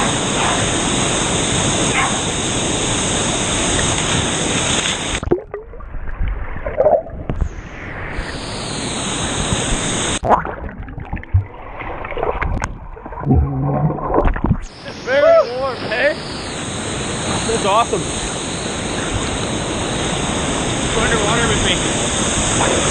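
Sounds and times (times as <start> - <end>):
waterfall rushing hiss: 0.0 - 5.2, 8.2 - 10.2, 14.7 - 22.9
water splashes: 3.5 - 7.5, 9.7 - 14.7
muffled underwater gurgling: 5.0 - 16.6.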